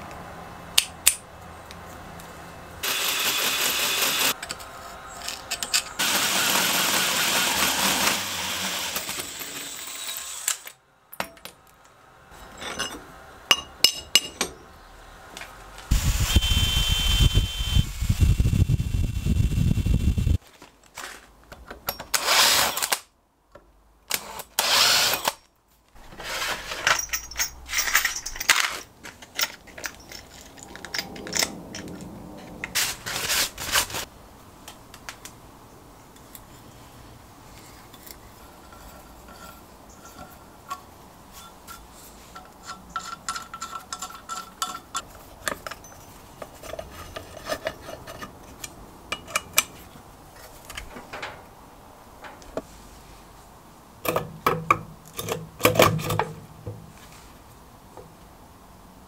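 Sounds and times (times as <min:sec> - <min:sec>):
power drill drilling steel: 0:02.8 - 0:04.4, 0:06.0 - 0:10.7, 0:24.6 - 0:25.4.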